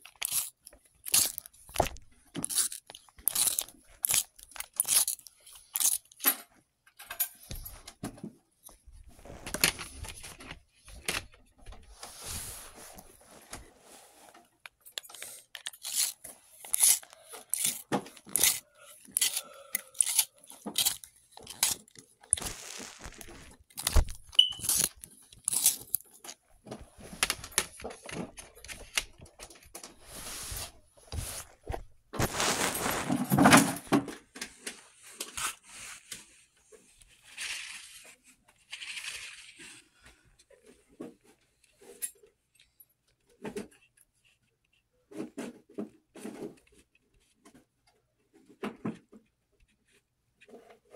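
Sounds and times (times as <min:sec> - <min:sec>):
rubbing and scraping: 0:00.0 - 0:06.2, 0:11.7 - 0:33.9
small objects clicking and tapping: 0:00.0 - 0:07.6, 0:14.6 - 0:26.4.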